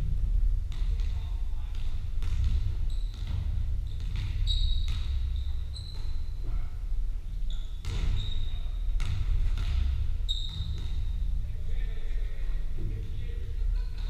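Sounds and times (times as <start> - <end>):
basketballs bouncing on wooden floor: 0.0 - 6.7, 7.4 - 11.4
steady low rumble: 0.0 - 14.0.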